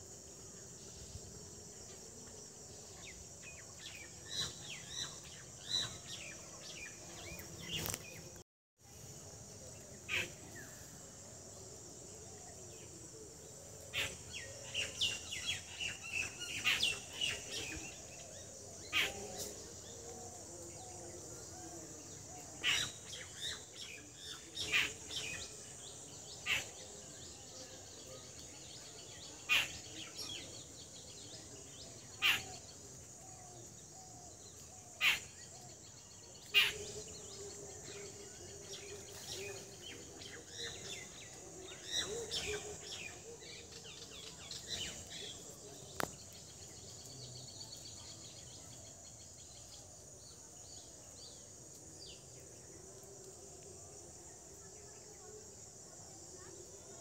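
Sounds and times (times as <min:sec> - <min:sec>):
small birds chirping: 0:03.1 - 0:08.4.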